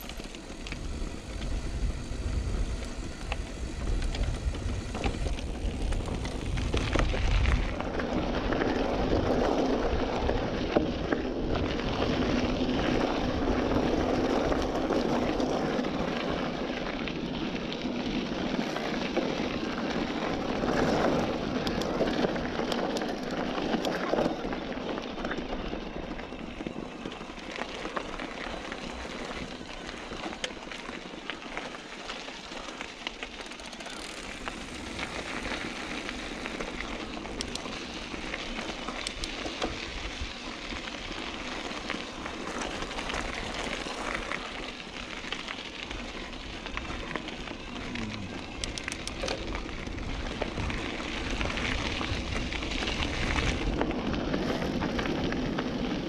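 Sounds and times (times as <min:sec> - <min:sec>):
rolling tyre noise: 0:00.0 - 0:56.0
small bike clicks: 0:00.0 - 0:56.0
wind rushing over microphone: 0:00.6 - 0:14.6.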